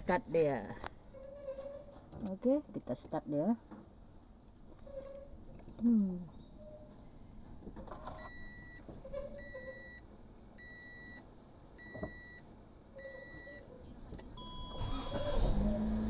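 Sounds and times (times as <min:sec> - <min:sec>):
car warning chime beeping: 0:08.2 - 0:08.8, 0:10.6 - 0:11.2, 0:11.8 - 0:12.4, 0:14.4 - 0:16.0
engine cranking and starting: 0:14.7 - 0:16.0.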